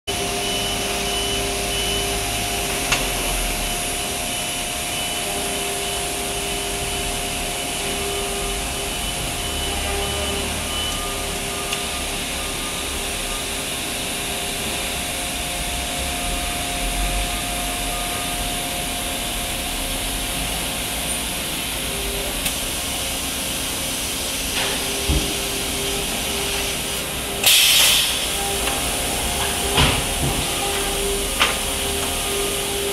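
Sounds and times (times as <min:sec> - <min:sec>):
machine humming and hissing: 0:00.1 - 0:32.9
loud burst of hiss: 0:27.4 - 0:31.7.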